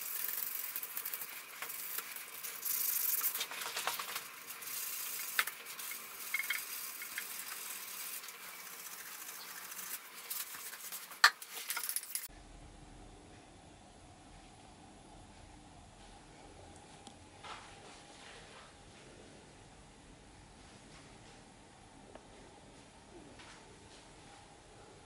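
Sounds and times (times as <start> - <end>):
hand scrubbing metal: 0.0 - 12.3.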